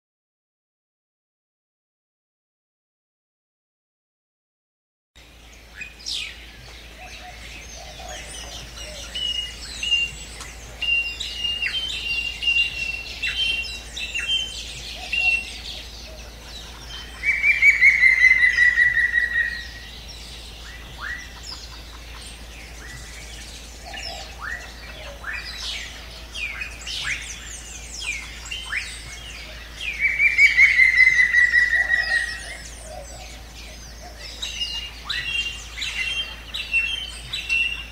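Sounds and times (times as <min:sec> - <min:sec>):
birds chirping: 0:05.2 - 0:37.9.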